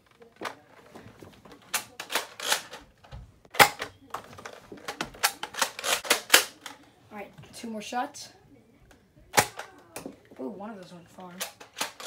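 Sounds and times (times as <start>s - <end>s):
toy gun spring pops and clicks: 5.2s - 6.6s.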